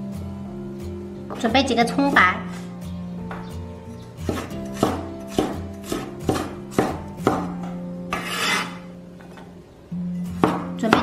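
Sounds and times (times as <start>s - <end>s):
cleaver chopping on wooden board: 4.2s - 8.8s, 10.4s - 11.0s
blade scraping board: 8.1s - 8.9s.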